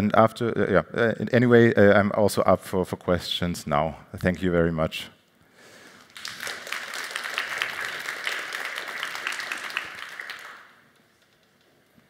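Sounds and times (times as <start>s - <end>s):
audience applauding: 6.0s - 11.0s.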